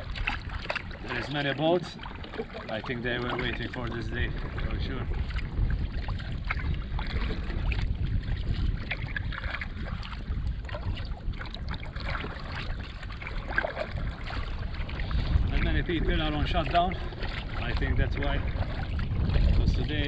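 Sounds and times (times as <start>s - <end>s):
low rumble of wind and water: 0.0s - 20.0s
paddle splashing in water: 0.0s - 20.0s.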